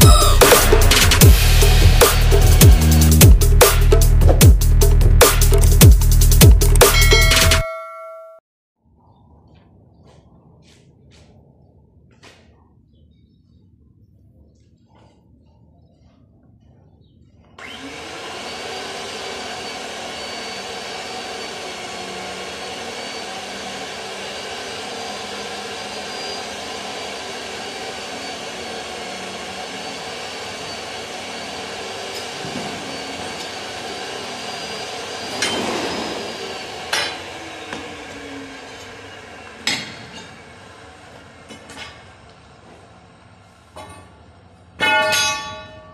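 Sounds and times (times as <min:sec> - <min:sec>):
pipe-threading machine whine: 0:00.0 - 0:04.5, 0:05.2 - 0:07.7, 0:17.6 - 0:43.0
loud metal clanks: 0:35.3 - 0:36.3, 0:44.8 - 0:45.9.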